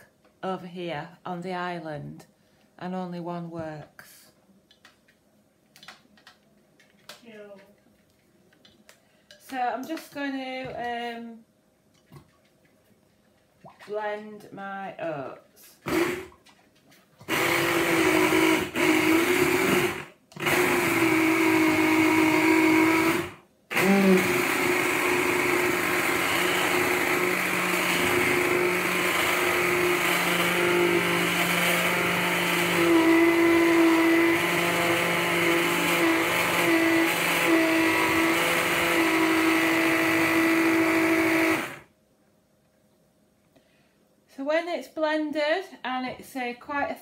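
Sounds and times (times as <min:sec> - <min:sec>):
hand blender running: 0:15.8 - 0:16.3, 0:17.3 - 0:41.9.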